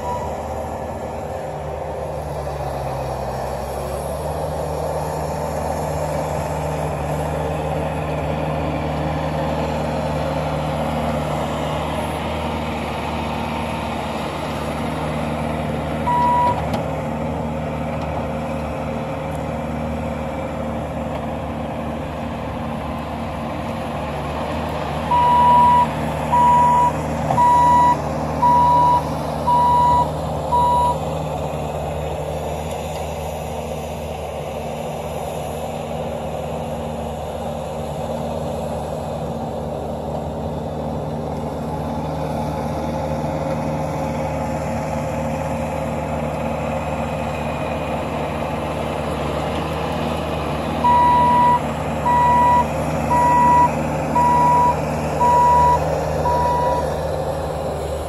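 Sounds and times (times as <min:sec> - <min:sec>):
backup alarm beeping: 0:00.0 - 0:00.4, 0:16.1 - 0:16.6, 0:25.1 - 0:31.0, 0:50.8 - 0:56.9
diesel engine running: 0:00.0 - 0:58.0.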